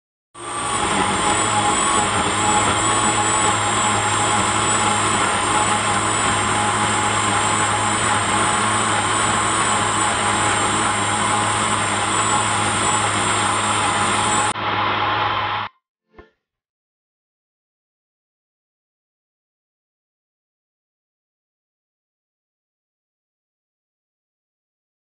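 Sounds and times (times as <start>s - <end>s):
blender motor whirring: 0.4s - 15.7s.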